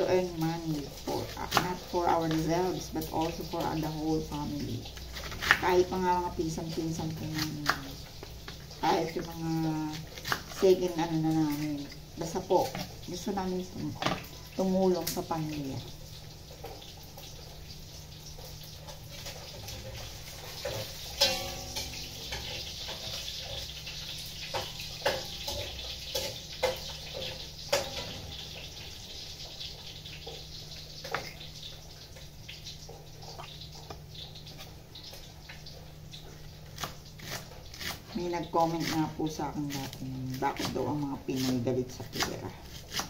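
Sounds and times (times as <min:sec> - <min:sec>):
cabbage rustling: 0:00.0 - 0:15.7, 0:36.3 - 0:43.0.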